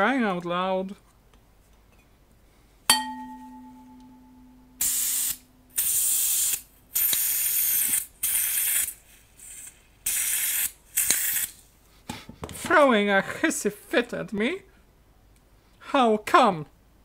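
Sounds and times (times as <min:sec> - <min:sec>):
metallic ring: 0:02.9 - 0:05.9
gas canister hissing bursts: 0:04.8 - 0:11.6.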